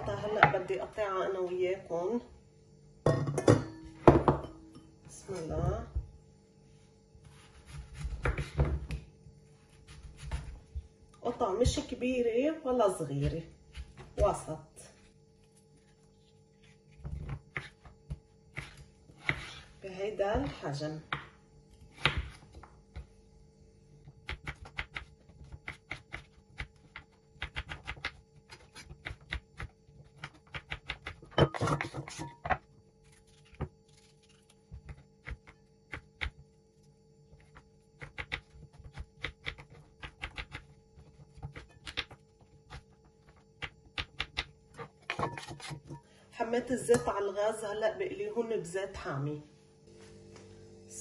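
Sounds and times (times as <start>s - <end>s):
knife chopping on wooden board: 7.5s - 9.0s.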